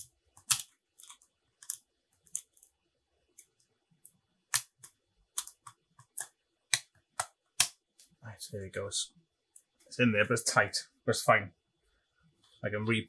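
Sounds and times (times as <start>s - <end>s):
plastic threads clicking and scraping: 0.0s - 8.2s.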